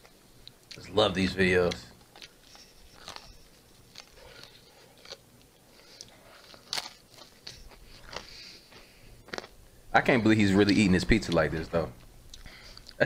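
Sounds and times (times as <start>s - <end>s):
person chewing crunchy food: 2.0s - 9.7s, 12.3s - 13.0s.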